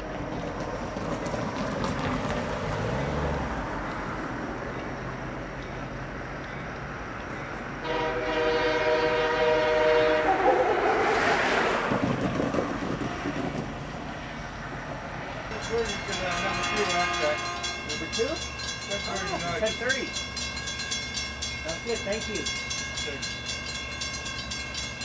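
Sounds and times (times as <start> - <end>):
train rumbling: 0.0 - 25.0
train horn blast: 7.8 - 10.9, 16.2 - 17.8.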